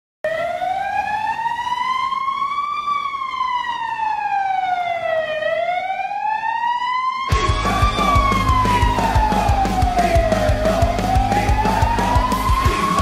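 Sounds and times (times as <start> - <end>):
goal siren wailing: 0.2 - 13.0.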